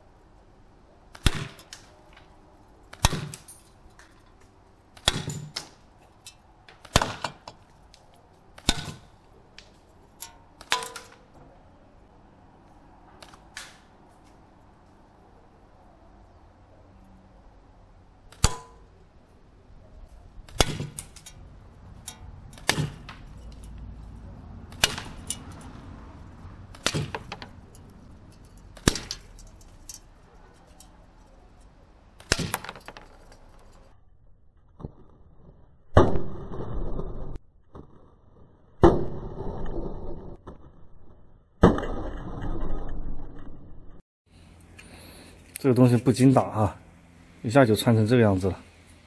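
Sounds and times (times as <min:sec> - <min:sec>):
steel balls hitting metal bowl: 0:26.6 - 0:31.2.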